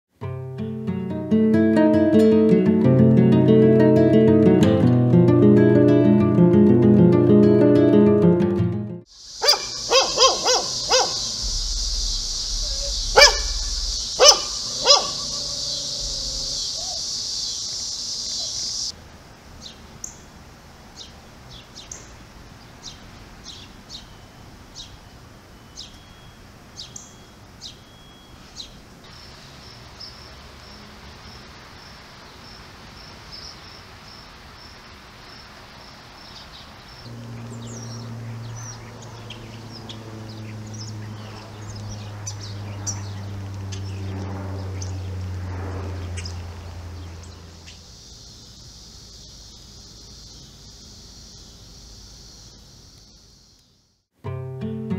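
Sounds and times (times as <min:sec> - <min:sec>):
high-pitched insect drone: 0:09.1 - 0:18.9, 0:37.0 - 0:53.6
songbirds chirping: 0:09.2 - 0:54.0
low steady hum: 0:09.3 - 0:17.3, 0:37.1 - 0:47.9
dog barking: 0:09.4 - 0:11.4, 0:12.6 - 0:17.1
pulsing high trill: 0:09.4 - 0:17.0, 0:37.1 - 0:39.3.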